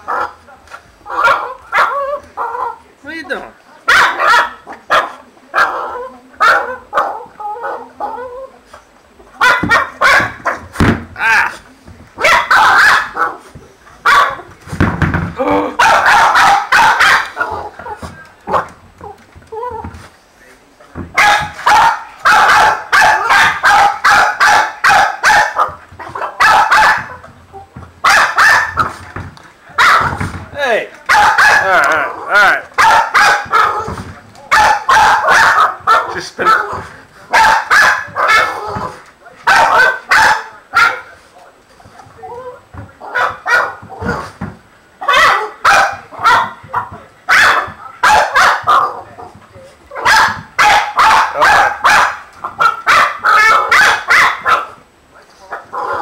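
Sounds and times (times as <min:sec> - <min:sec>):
dog barking rapidly: 0:01.1 - 0:02.8, 0:03.9 - 0:05.8, 0:09.4 - 0:10.6, 0:12.2 - 0:13.4, 0:14.0 - 0:14.4, 0:15.8 - 0:17.7, 0:21.2 - 0:27.2, 0:28.0 - 0:28.9, 0:29.8 - 0:30.2, 0:31.1 - 0:31.7, 0:32.8 - 0:33.9, 0:34.5 - 0:38.6, 0:39.4 - 0:41.1, 0:43.1 - 0:43.8, 0:45.0 - 0:49.0, 0:50.0 - 0:54.8.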